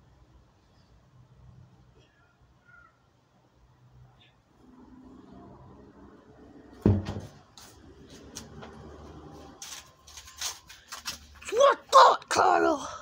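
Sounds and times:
tractor tire thudding onto grass: 6.8s - 7.4s.

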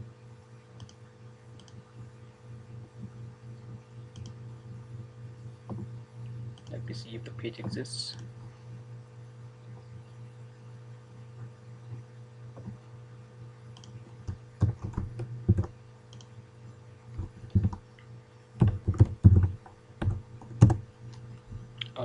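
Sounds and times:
low hum: 0.0s - 22.0s
computer keyboard typing: 13.8s - 16.3s, 17.2s - 17.8s, 18.6s - 20.8s.

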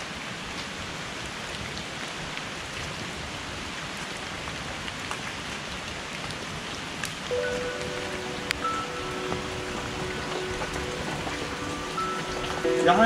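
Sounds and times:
heavy rain falling: 0.0s - 13.0s
close raindrop ticks: 4.0s - 13.0s.

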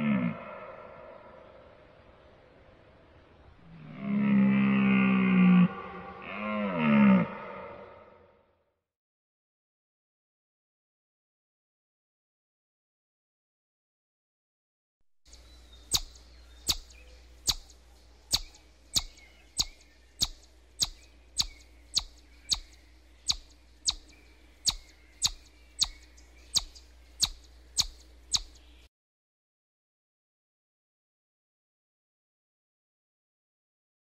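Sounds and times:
chipmunk chip calls: 15.3s - 28.9s
faint low hum: 15.3s - 28.9s.

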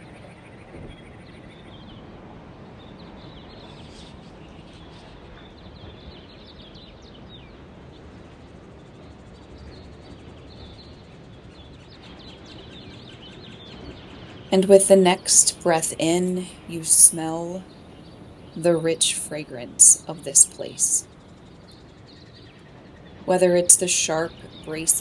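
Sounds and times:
steady background hiss: 13.7s - 25.0s.

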